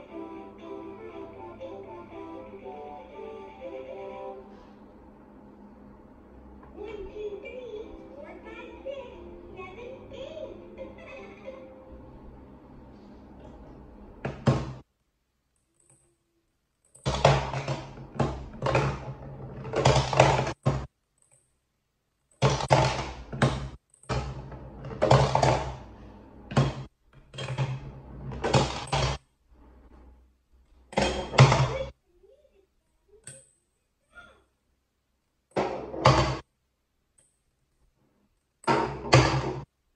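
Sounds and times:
plastic balls rolling in plastic toy: 16.9 - 21.3, 22.3 - 29.2.

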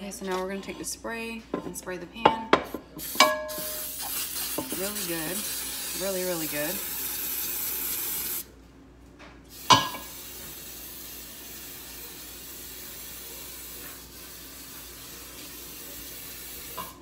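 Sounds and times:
cooking spray hissing: 2.7 - 8.5, 9.5 - 17.0.

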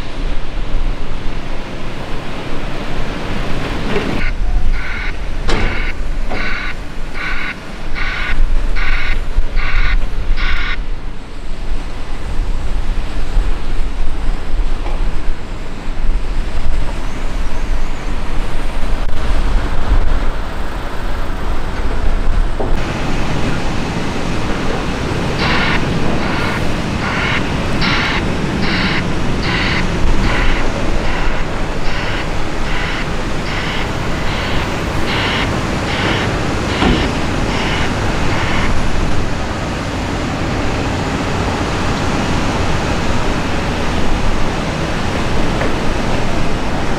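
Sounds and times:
diesel engine rumbling: 0.0 - 46.9
heavy trucks running: 0.0 - 46.9
reversing alarm beeping: 4.2 - 10.9, 25.1 - 39.0.

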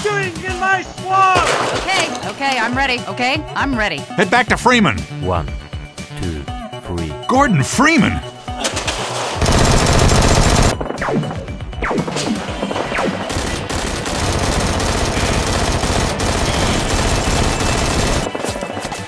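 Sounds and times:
music: 0.0 - 19.0
automatic gunfire: 9.4 - 10.8, 13.0 - 19.0.

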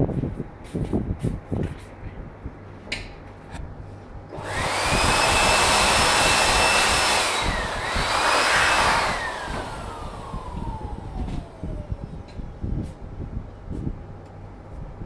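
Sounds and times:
electric air blower blowing: 4.3 - 12.3
turbo shaft high whine: 4.3 - 12.6.

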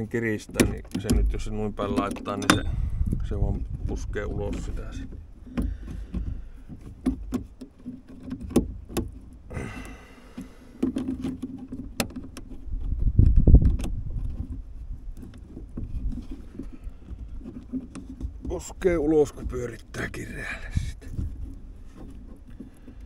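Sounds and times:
steel cable clicks and taps: 0.4 - 2.7, 10.4 - 18.6
metal lid latch clicking: 0.6 - 2.8.

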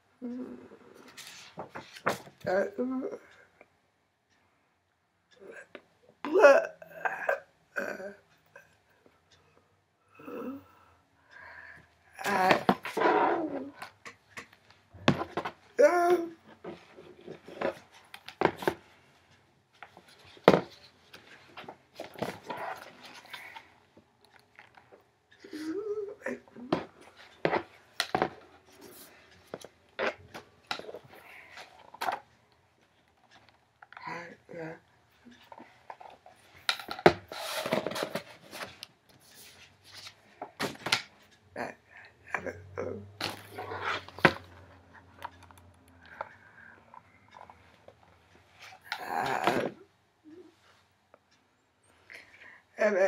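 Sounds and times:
book pages turning: 35.9 - 41.1.

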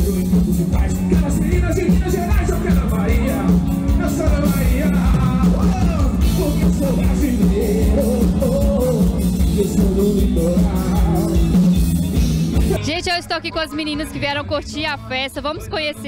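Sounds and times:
person singing: 0.0 - 11.8
heavy bass: 0.0 - 16.0
live band music: 0.0 - 16.0.

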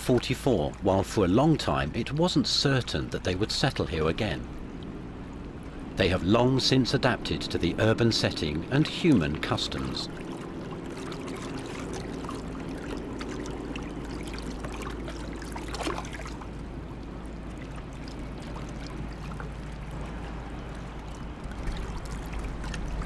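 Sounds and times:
steady low rumble: 0.0 - 23.0
water lapping and rippling: 0.0 - 23.0
water splash: 6.0 - 23.0.

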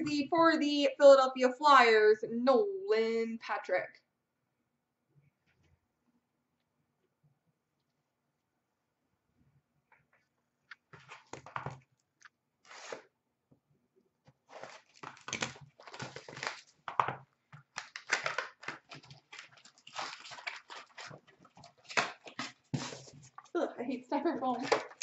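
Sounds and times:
cardboard wrapping tearing: 12.6 - 13.1, 14.5 - 16.8, 17.7 - 23.5.

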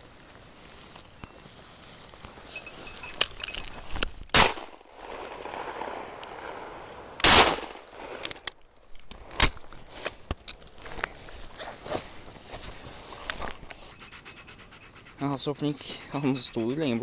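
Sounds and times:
shotgun shots: 4.3 - 8.2.

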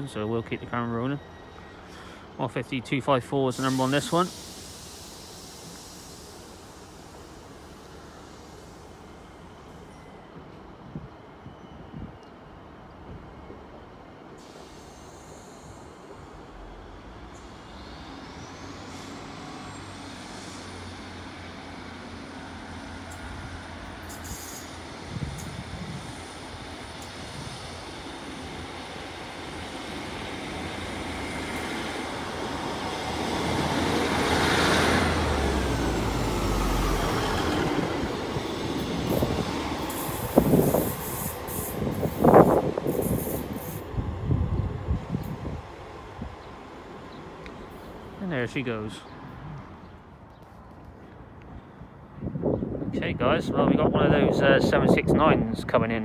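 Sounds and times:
diesel train passing: 0.0 - 56.0.

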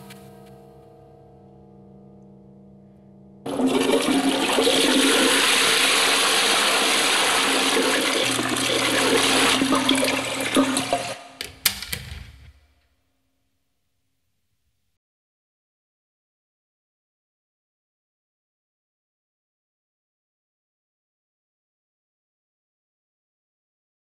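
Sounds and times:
water draining with gurgles: 3.5 - 11.4
toilet flushing: 3.5 - 11.6.

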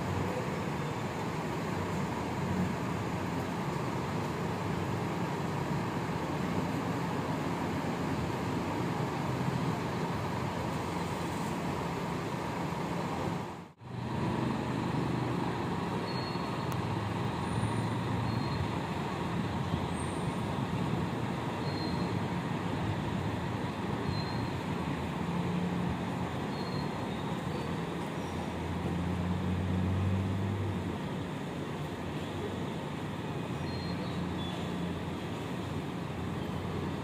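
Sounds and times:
bus diesel engines humming: 0.0 - 37.0.

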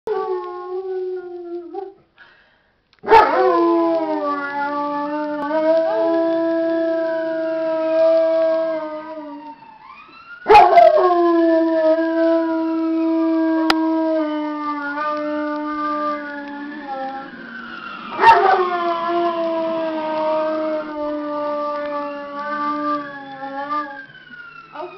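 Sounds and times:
siren wailing from speakers: 0.1 - 2.1, 3.0 - 24.9
dog howling: 3.1 - 9.4, 10.5 - 17.3, 18.1 - 24.0.

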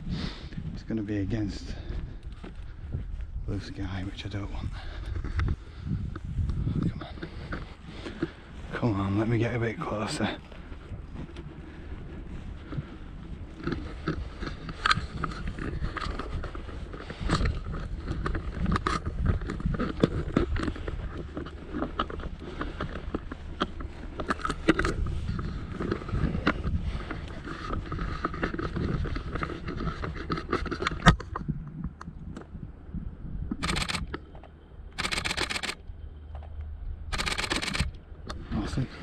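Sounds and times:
footsteps through dry grass: 0.0 - 31.6, 33.6 - 39.0
clothing and gear rustling: 5.0 - 31.0
handling clicks: 35.0 - 35.8, 37.1 - 38.0.

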